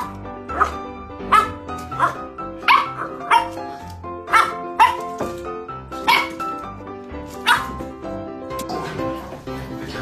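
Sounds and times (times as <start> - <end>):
puppy barking: 0.0 - 5.4, 6.0 - 6.6, 7.3 - 7.8
background music: 0.0 - 10.0.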